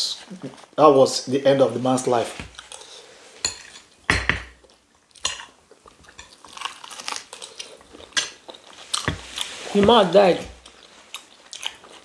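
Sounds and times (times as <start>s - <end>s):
cutlery scraping plates: 2.8s - 4.6s
cutlery clinking on glass plates: 3.4s - 4.6s.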